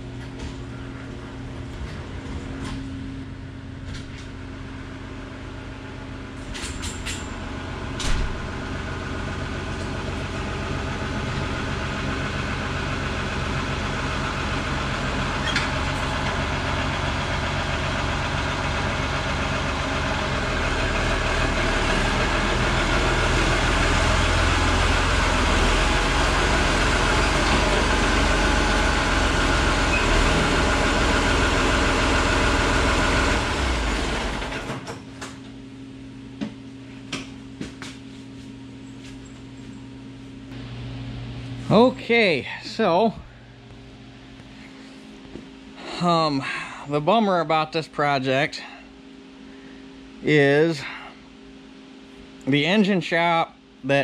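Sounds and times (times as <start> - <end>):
tractor engine running: 0.0 - 37.7.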